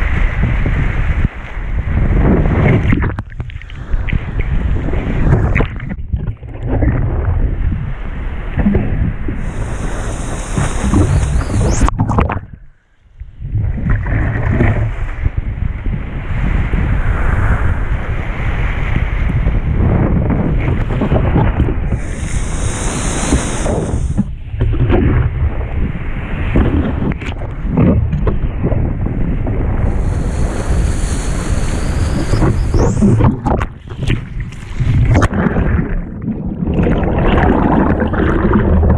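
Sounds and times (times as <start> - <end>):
wind buffeting microphone: 0.0 - 12.6, 13.3 - 38.9
muffled underwater bubbling: 8.6 - 12.6, 21.8 - 25.2, 29.5 - 38.9
rushing splashing water: 8.8 - 12.0, 21.9 - 24.4, 29.6 - 36.1.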